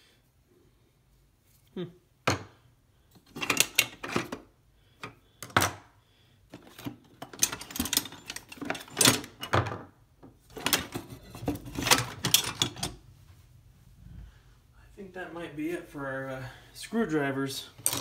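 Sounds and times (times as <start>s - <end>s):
screwdrivers clattering on wood: 3.2s - 4.4s, 5.0s - 5.8s, 6.5s - 9.9s, 10.5s - 13.0s, 17.8s - 18.0s.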